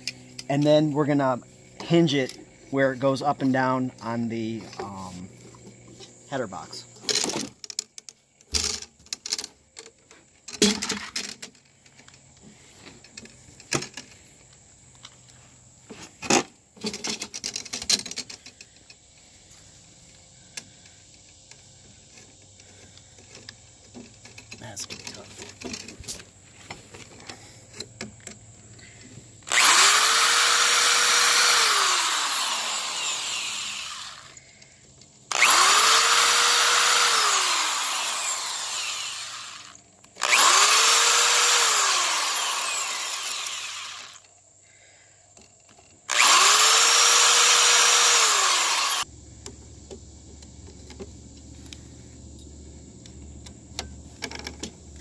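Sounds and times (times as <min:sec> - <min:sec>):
electric drill whining: 0:29.4 - 0:34.4, 0:35.3 - 0:44.3, 0:46.1 - 0:49.1.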